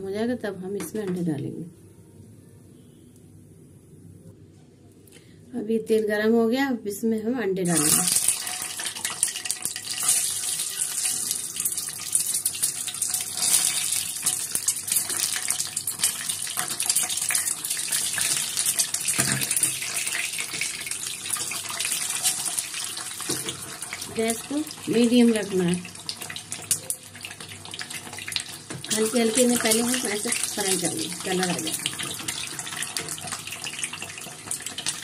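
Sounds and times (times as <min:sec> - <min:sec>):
oil sizzling and crackling: 0:07.6 - 0:35.0
eggs dropping into oil: 0:12.2 - 0:22.5.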